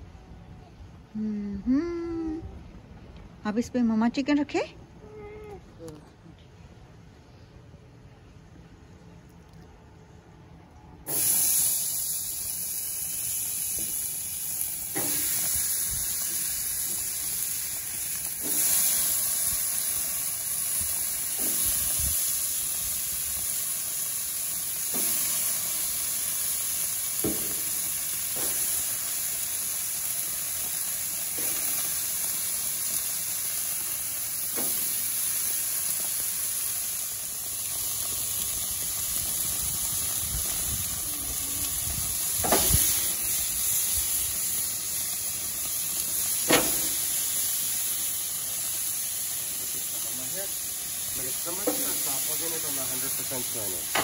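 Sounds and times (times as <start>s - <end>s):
meat sizzling on grill: 11.1s - 54.0s
meat knocking on grate: 27.2s - 27.7s, 46.5s - 47.0s.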